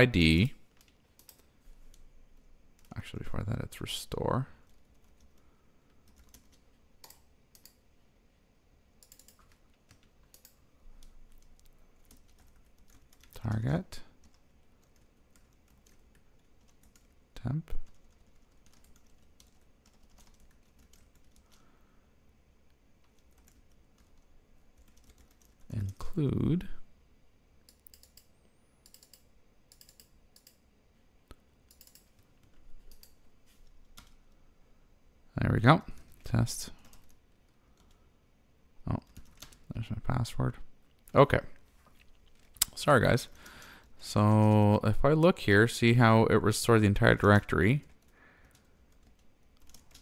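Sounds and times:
computer keyboard keystrokes: 0.8 - 2.0, 6.0 - 7.8, 9.0 - 13.4, 17.8 - 21.6, 22.7 - 25.7, 27.7 - 30.6, 31.7 - 33.2, 33.8 - 34.4, 39.0 - 39.6, 47.8 - 50.0.

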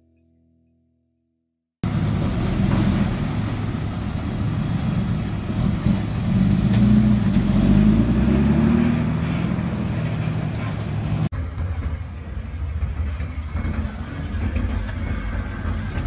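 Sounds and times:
music: 0.0 - 1.4
heavy diesel truck engine: 1.8 - 16.0.

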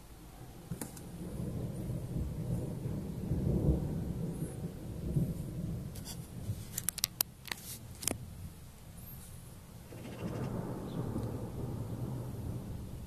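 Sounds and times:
low rolling thunder: 0.6 - 7.4, 8.1 - 13.0.

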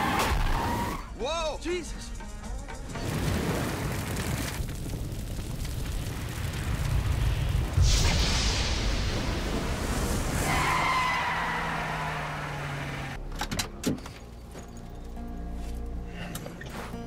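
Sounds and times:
explosion and fire rumbling: 3.0 - 11.2
high squeal: 10.1 - 12.6.

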